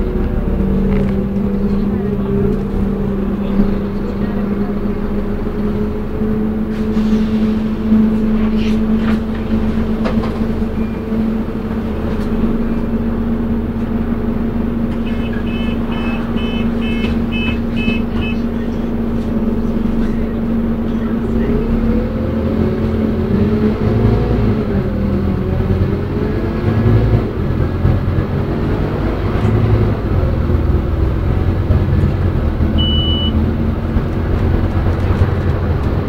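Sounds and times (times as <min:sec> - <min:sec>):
bus engine droning: 0:00.0 - 0:36.0
short electronic beeps: 0:32.8 - 0:33.4.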